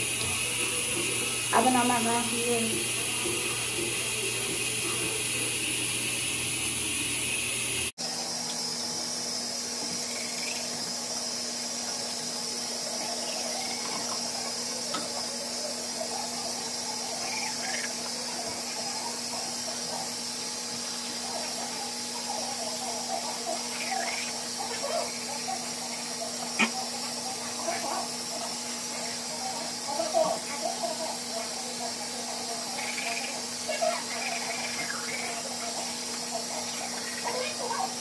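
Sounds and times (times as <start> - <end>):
toothbrush scrubbing teeth: 0.0 - 7.9
steady hiss: 0.0 - 8.3.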